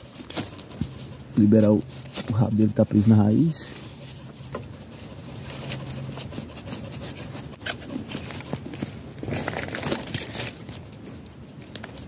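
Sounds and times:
rustling of twigs and leaves: 0.0s - 12.0s
small clicks and snaps: 11.2s - 12.0s.

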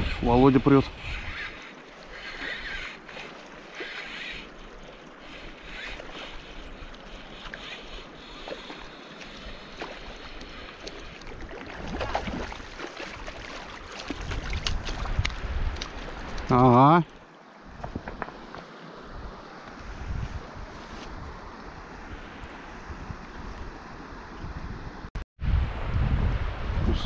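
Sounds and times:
wind on microphone: 0.0s - 4.5s, 11.4s - 16.7s, 19.1s - 27.0s
river water rushing: 1.3s - 15.2s
small water splashes: 1.5s - 16.4s.

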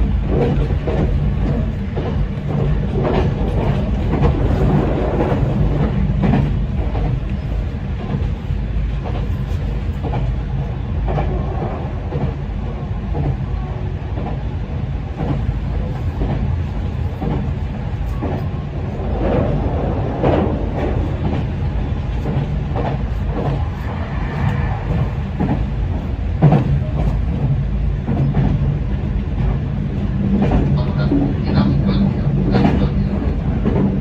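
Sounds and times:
train wheels and motors rumbling: 0.0s - 34.0s.

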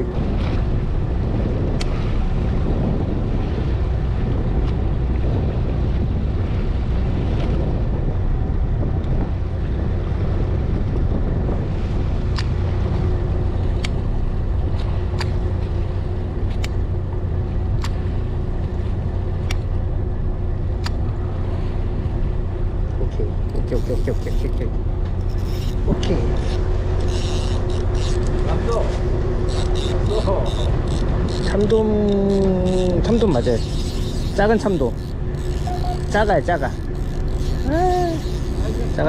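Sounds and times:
boat engine running: 0.0s - 39.0s
wind buffeting microphone: 0.0s - 39.0s
sharp ticks: 29.4s - 39.0s.

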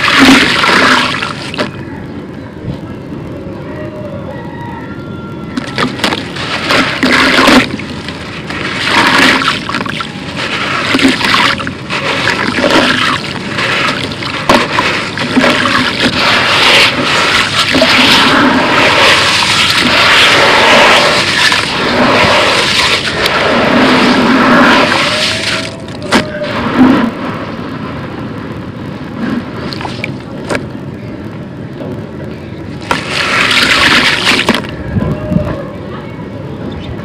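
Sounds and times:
water sloshing: 0.0s - 1.7s, 5.6s - 26.0s, 32.8s - 34.7s
gritty crunching: 5.6s - 27.4s.

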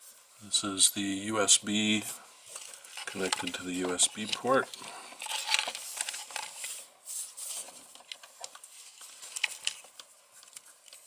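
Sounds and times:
wires and cable rustling: 0.0s - 11.0s
plastic parts clicking: 2.5s - 6.8s, 7.9s - 11.0s.

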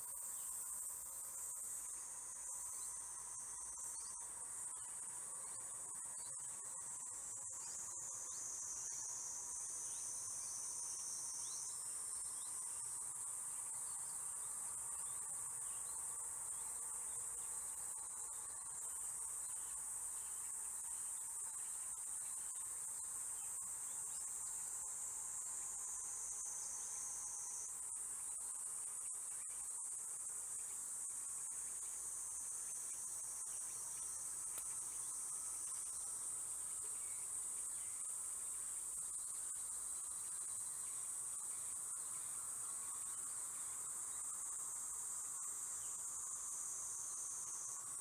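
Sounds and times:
high-pitched insect chorus: 0.0s - 48.0s.

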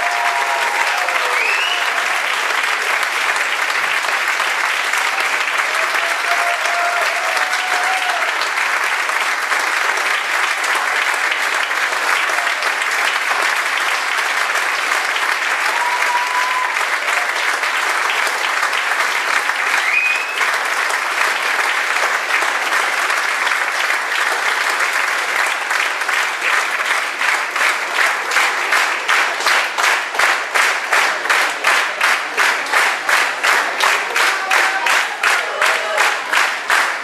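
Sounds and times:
audience applauding: 0.0s - 37.0s
clapping in unison: 0.0s - 37.0s.

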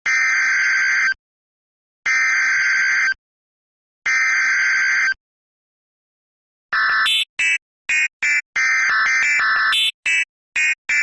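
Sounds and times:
harsh buzzing data tones: 6.8s - 11.0s.

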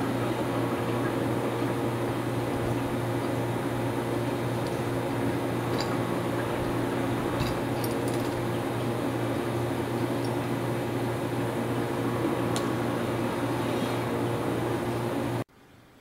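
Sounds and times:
low mechanical hum: 0.0s - 16.0s
faint clinks of steel parts: 7.4s - 8.4s.

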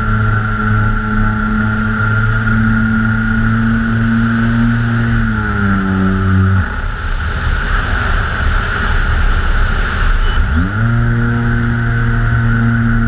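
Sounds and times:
wind noise: 0.0s - 13.0s
electric motors humming: 10.2s - 13.0s.

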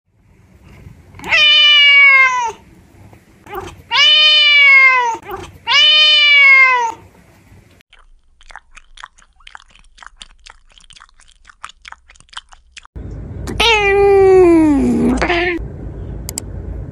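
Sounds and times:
cat meowing: 1.2s - 2.6s, 3.5s - 7.0s, 13.6s - 15.6s
cat chewing paw: 7.9s - 12.9s.

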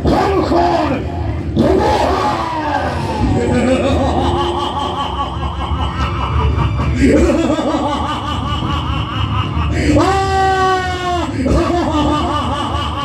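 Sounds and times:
person laughing loudly: 3.0s - 13.0s.

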